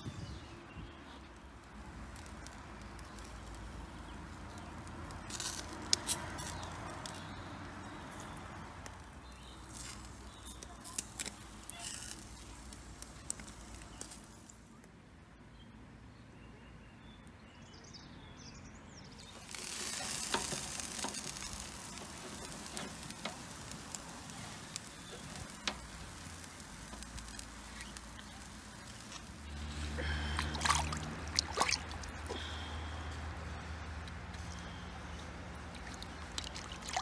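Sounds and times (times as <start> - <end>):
chicken sizzling on charcoal grill: 0.3 - 14.7, 19.1 - 37.0
stream water splashing: 28.8 - 32.8, 35.6 - 37.0.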